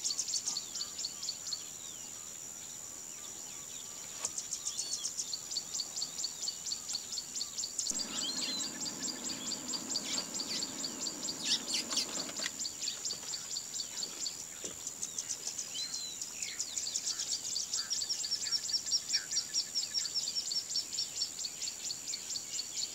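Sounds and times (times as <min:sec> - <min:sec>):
low rumbling noise: 0:07.9 - 0:13.0
pulsing insect buzz: 0:07.9 - 0:13.3
short bird chirps: 0:07.9 - 0:13.5.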